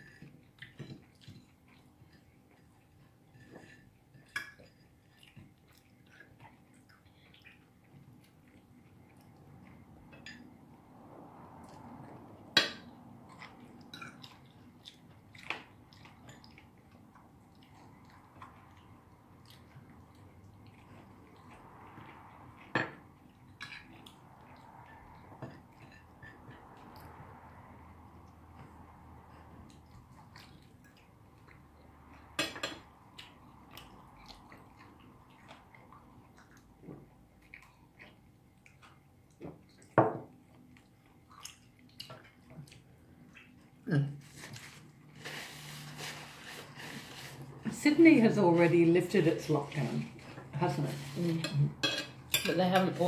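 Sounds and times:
cutlery clinking on plates: 0:32.3 - 0:32.9, 0:51.4 - 0:53.0.

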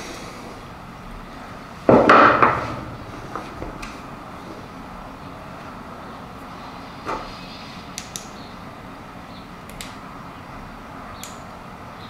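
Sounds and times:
shop background hum: 0:00.0 - 0:12.0
light metallic clicks: 0:08.0 - 0:08.4, 0:09.7 - 0:10.0, 0:11.2 - 0:11.5.

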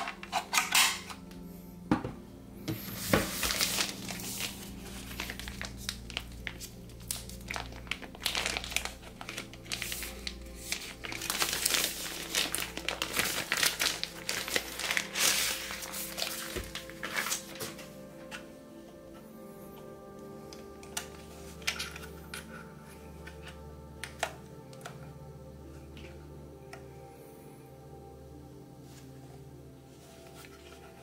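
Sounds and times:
background music: 0:00.0 - 0:31.0
plastic bags crinkling: 0:03.0 - 0:17.9.

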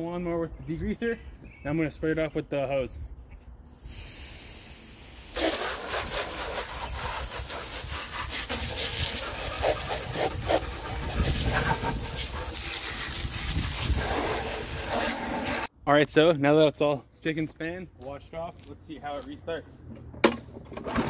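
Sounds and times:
hose water spraying on mower: 0:03.7 - 0:15.7.

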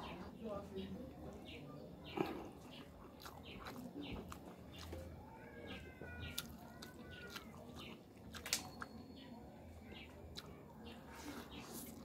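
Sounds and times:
wet mouth clicks and lip smacks: 0:08.3 - 0:08.9.

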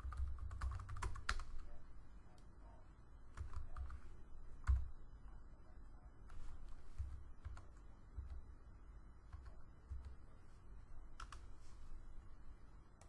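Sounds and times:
keyboard typing: 0:00.0 - 0:01.8, 0:03.3 - 0:05.0, 0:06.2 - 0:08.6, 0:09.2 - 0:10.3, 0:11.1 - 0:11.6.

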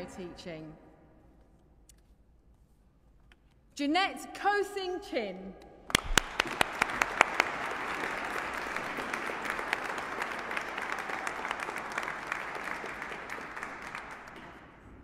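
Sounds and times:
audience applauding: 0:05.9 - 0:14.4.

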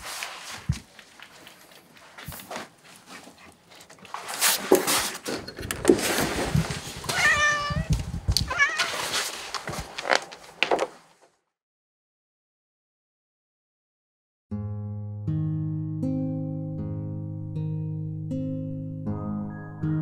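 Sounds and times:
rustling: 0:00.0 - 0:11.3
cat meowing: 0:07.1 - 0:09.1.

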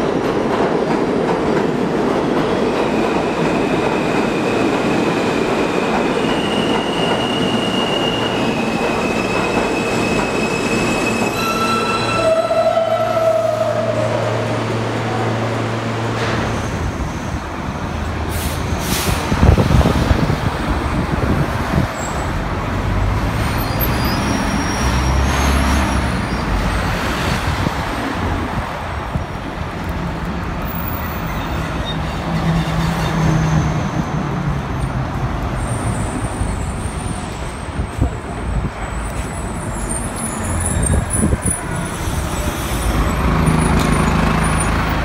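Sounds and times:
subway train hum: 0:00.0 - 0:45.0
trucks and buses driving past: 0:09.9 - 0:45.0
air brakes releasing: 0:18.3 - 0:19.4.

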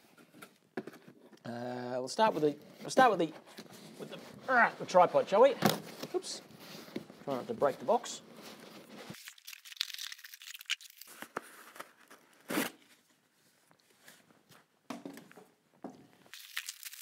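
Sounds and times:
cardboard and plastic rustling: 0:02.4 - 0:13.1.

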